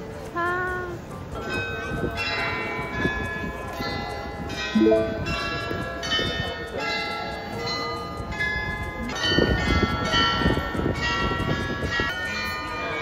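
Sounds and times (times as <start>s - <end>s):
tower bells playing tune: 4.5s - 6.2s.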